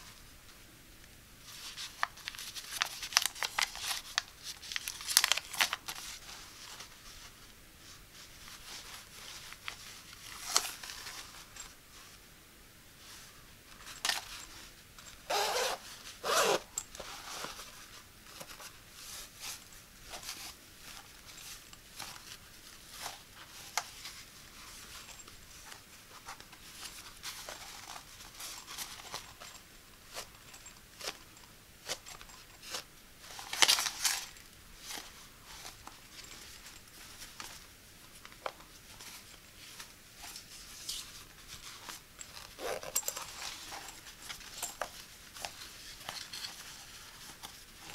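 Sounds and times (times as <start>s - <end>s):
zipper being drawn: 15.3s - 16.8s.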